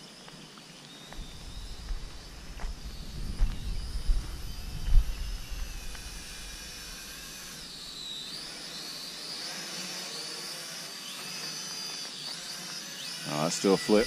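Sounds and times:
drone propellers whining: 0:01.1 - 0:14.0
low rumble: 0:01.2 - 0:07.8.

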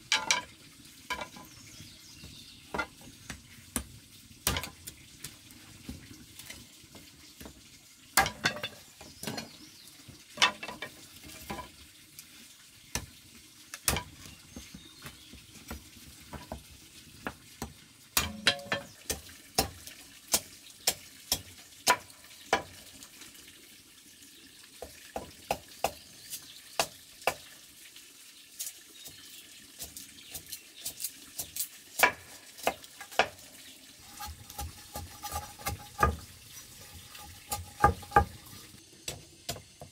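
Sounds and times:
bamboo kindling crackling in fire: 0:00.0 - 0:23.7, 0:24.7 - 0:39.9
cleaver splitting bamboo: 0:29.8 - 0:33.4, 0:34.0 - 0:38.4.

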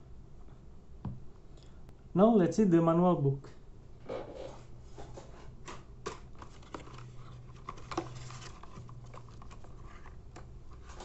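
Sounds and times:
faint low hum: 0:00.0 - 0:11.0
paper rustling: 0:04.4 - 0:11.0.

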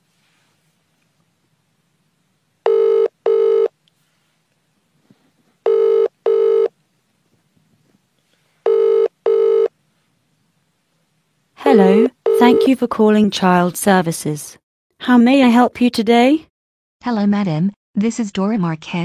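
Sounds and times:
telephone ringing: 0:02.6 - 0:03.8, 0:05.6 - 0:06.7, 0:08.6 - 0:09.7, 0:11.6 - 0:12.8.

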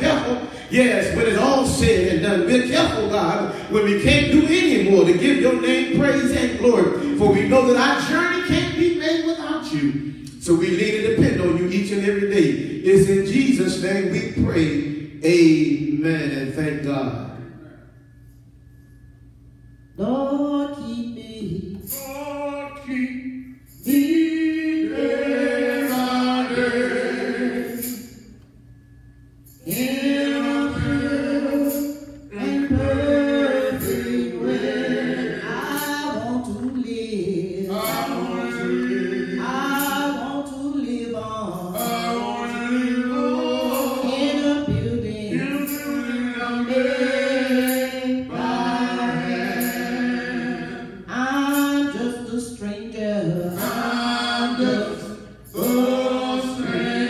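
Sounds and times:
vocal group singing a cappella: 0:00.0 - 0:08.9, 0:20.0 - 0:28.4, 0:29.0 - 0:57.0.

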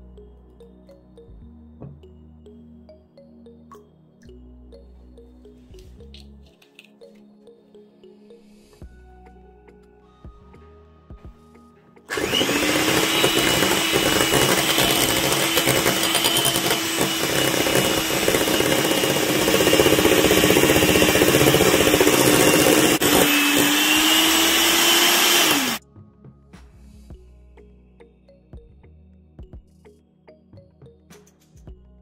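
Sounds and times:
hand mixer motor whine: 0:12.1 - 0:25.8.

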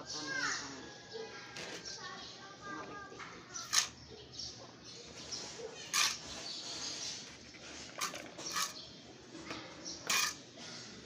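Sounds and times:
trowel scraping soil on concrete: 0:03.6 - 0:04.0, 0:05.1 - 0:08.9, 0:10.0 - 0:10.5.

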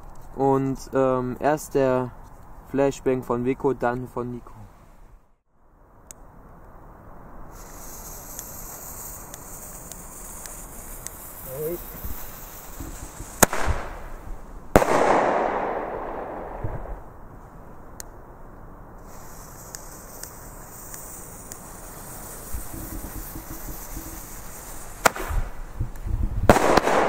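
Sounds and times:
firecracker bangs: 0:11.2 - 0:17.0, 0:22.6 - 0:25.6, 0:26.5 - 0:27.0
bang echo: 0:14.8 - 0:17.0.

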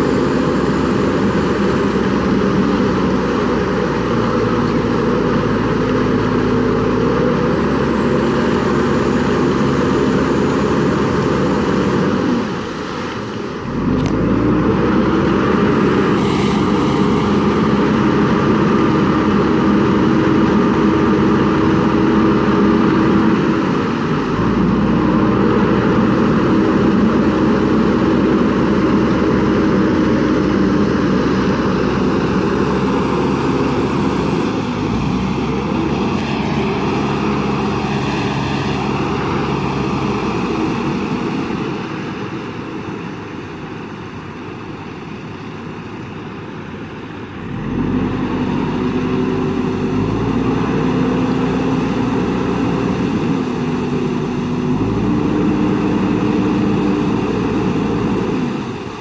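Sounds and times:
water splashing: 0:00.0 - 0:44.8
diesel engine working hard: 0:00.0 - 0:59.0.

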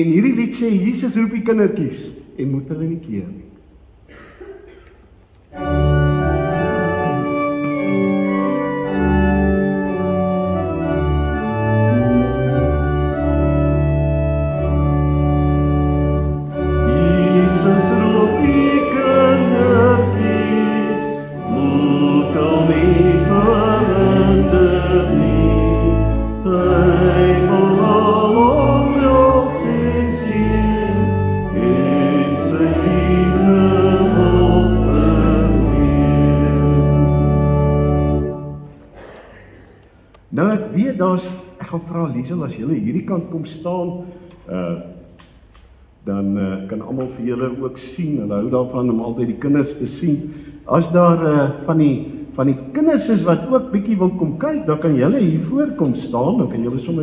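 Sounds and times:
church organ playing hymn chords: 0:05.4 - 0:39.0
congregation singing a hymn: 0:05.6 - 0:38.6.

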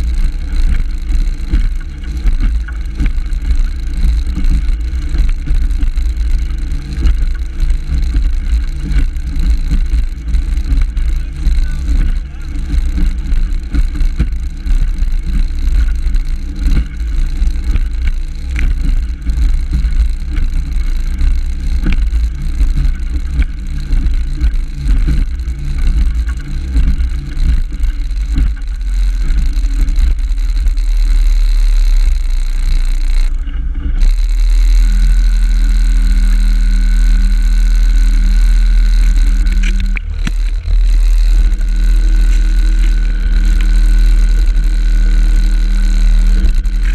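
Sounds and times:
hull knocking on waves: 0:00.0 - 0:30.8
outboard motor running: 0:00.0 - 0:46.9.

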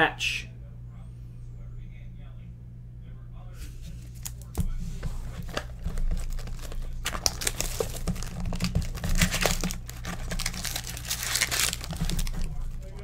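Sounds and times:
foil wrapper tearing and crinkling: 0:04.0 - 0:13.0.

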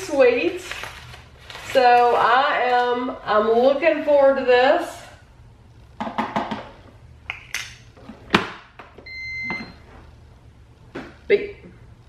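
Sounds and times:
coffee maker electronic beep: 0:09.0 - 0:09.8.

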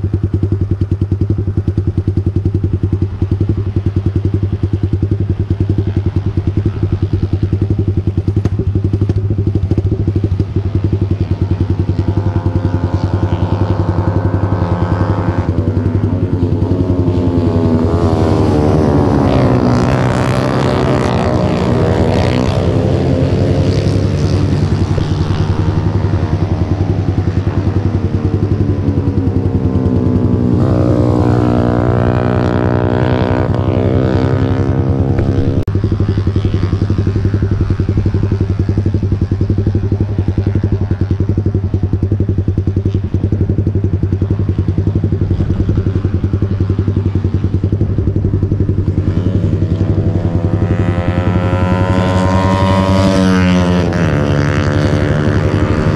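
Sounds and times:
motorcycle engine idling: 0:00.0 - 0:19.9, 0:20.6 - 0:55.9
motorcycles passing: 0:00.0 - 0:55.9.

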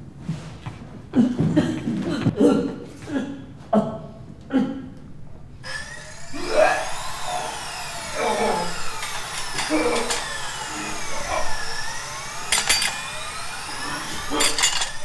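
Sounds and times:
whine rising and falling in pitch: 0:05.6 - 0:15.0.

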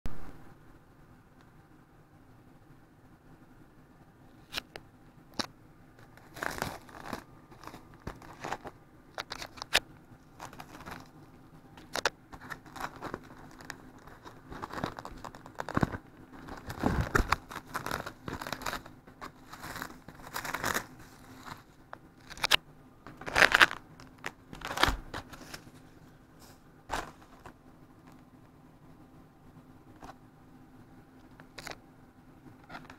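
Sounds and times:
cling film crinkling: 0:05.4 - 0:11.2, 0:11.8 - 0:28.3
packets rustling: 0:05.4 - 0:11.2, 0:11.8 - 0:28.2.

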